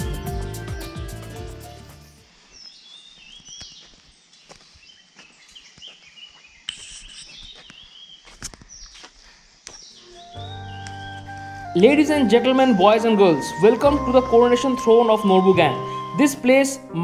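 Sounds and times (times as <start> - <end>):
birds chirping: 0.3 - 17.0
soft footsteps on a path: 2.2 - 13.9.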